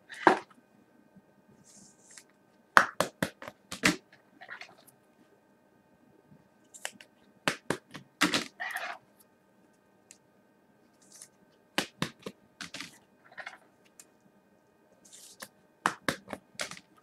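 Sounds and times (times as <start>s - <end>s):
cards clicking and tapping: 15.2s - 16.9s.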